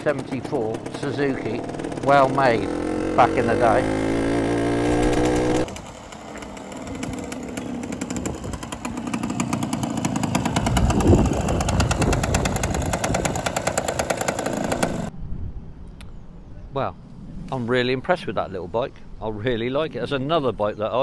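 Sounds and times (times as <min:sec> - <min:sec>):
engine rev: 0:00.0 - 0:15.1
two-stroke motorcycle engine popping: 0:00.0 - 0:15.1.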